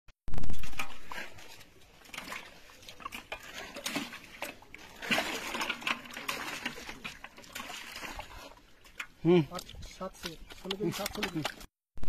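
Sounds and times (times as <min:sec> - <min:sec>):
water splashes: 0:00.3 - 0:11.7.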